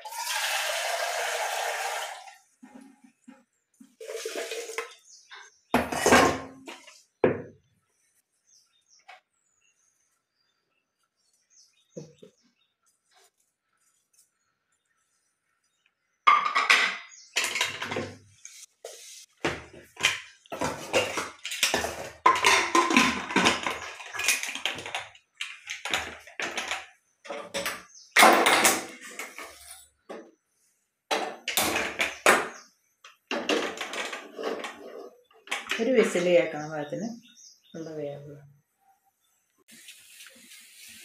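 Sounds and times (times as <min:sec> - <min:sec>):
metal pots clanking: 0:04.0 - 0:07.4, 0:16.3 - 0:18.2, 0:20.0 - 0:29.7.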